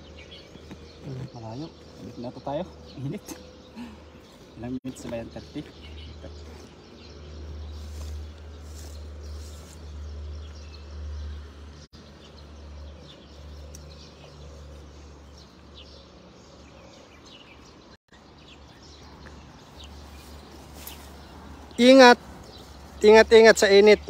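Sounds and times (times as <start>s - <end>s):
bird chirps: 0.0s - 24.0s.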